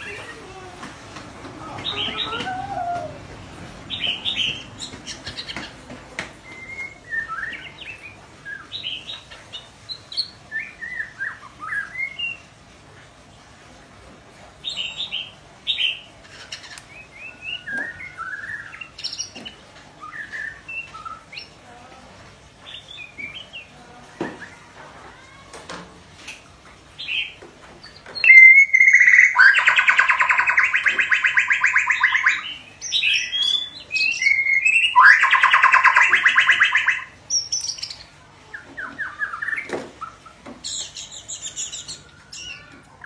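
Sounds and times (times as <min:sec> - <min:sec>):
bird chirping and whistling: 0:06.4 - 0:09.0, 0:10.2 - 0:12.4, 0:17.0 - 0:19.2, 0:28.2 - 0:38.0, 0:40.6 - 0:42.7.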